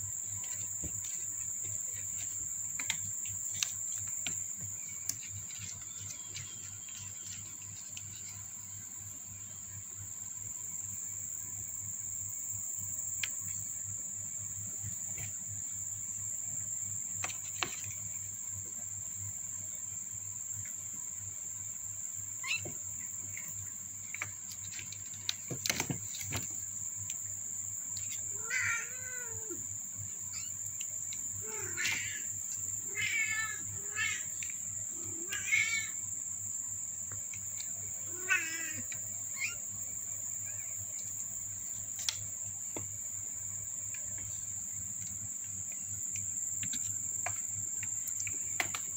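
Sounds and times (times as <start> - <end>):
kittens mewing: 28.3 - 29.6, 31.4 - 34.3, 35.0 - 36.0, 38.0 - 39.6.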